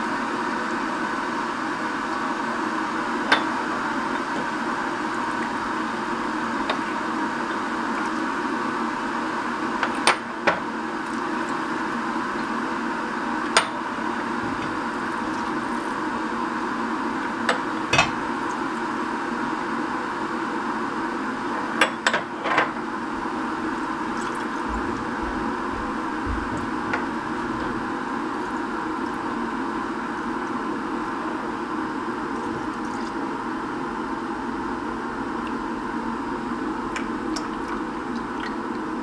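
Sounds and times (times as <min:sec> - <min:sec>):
mechanical hum: 0:00.0 - 0:39.0.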